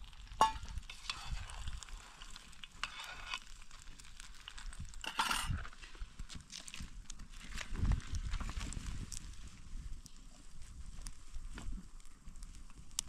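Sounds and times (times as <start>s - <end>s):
eggs sizzling in a metal pan: 0.0s - 6.7s
metal spoon scraping a pan: 0.4s - 3.6s, 5.0s - 5.8s.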